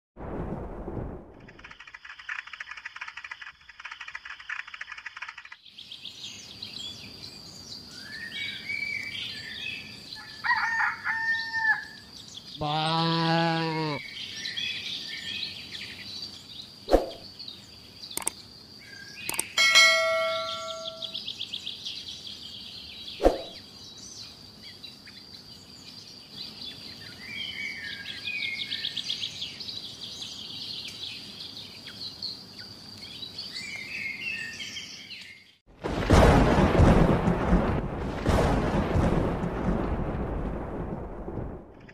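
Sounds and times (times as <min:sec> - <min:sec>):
sharp clicks: 0:01.3 - 0:05.6, 0:18.1 - 0:18.4, 0:19.2 - 0:19.6
birds chirping: 0:02.0 - 0:35.6
high insect trill: 0:09.8 - 0:28.4.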